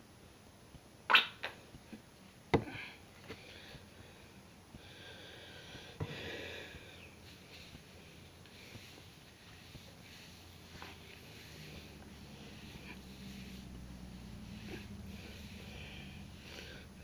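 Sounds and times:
hands rubbing hair: 7.1 - 17.0.

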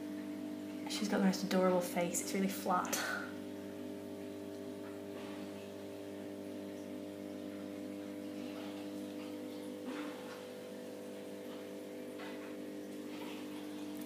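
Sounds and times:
aquarium pump humming: 0.0 - 14.0
water bubbling: 3.0 - 14.0.

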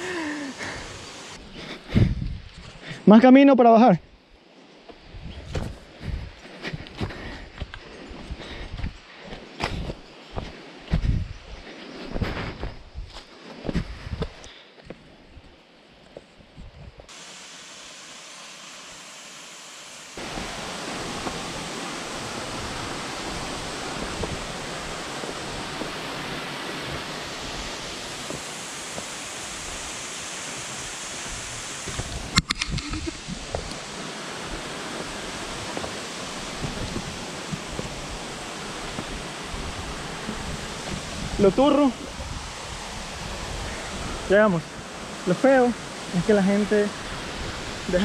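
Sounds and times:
waterfall rushing: 0.0 - 1.4, 17.1 - 48.0.

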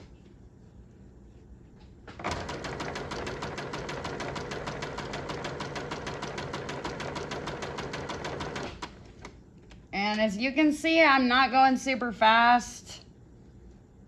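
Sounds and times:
sewing machine stitching: 2.2 - 9.0.

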